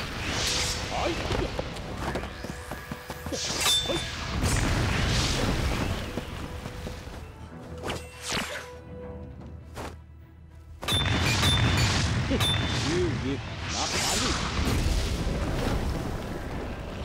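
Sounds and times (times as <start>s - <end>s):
magical whooshes: 0.0s - 1.6s
dramatic background music: 0.0s - 17.0s.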